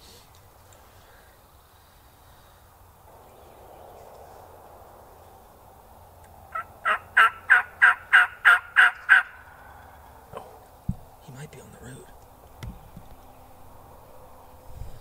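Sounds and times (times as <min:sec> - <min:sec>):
turkey yelping: 0:06.5 - 0:09.8.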